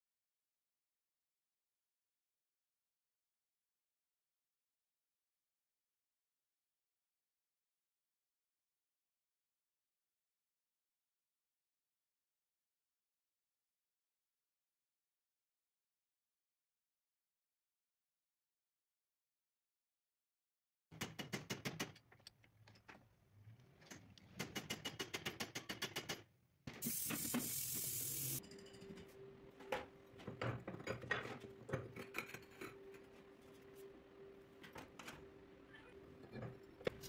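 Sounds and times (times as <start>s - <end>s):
hiss burst: 26.8s - 28.4s.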